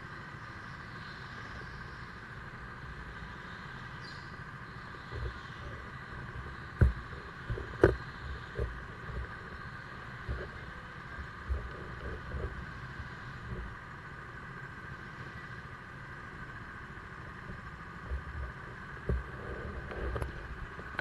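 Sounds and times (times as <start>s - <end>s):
mechanical hum with low rumble: 0.0s - 21.0s
short knocks and bumps: 6.8s - 9.3s.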